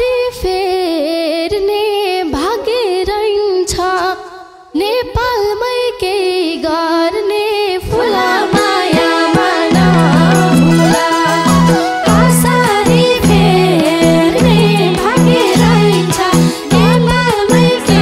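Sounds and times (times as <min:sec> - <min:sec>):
woman singing into a microphone: 0:00.0 - 0:18.0
band accompaniment with drum strokes: 0:07.9 - 0:18.0.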